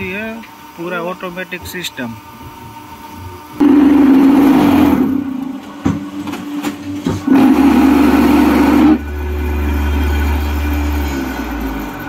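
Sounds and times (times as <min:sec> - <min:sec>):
machine vibrators buzzing rattle: 0:00.0 - 0:12.0.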